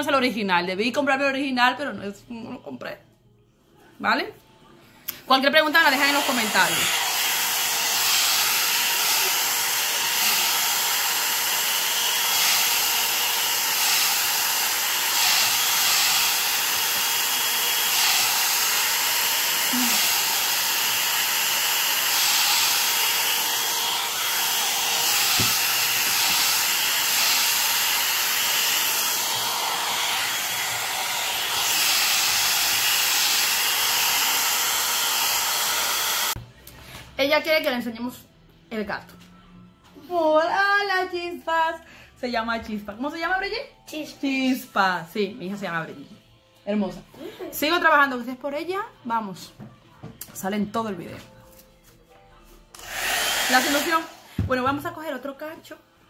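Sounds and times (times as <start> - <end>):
hot air brush blowing air: 5.9 - 36.4, 52.8 - 54.5.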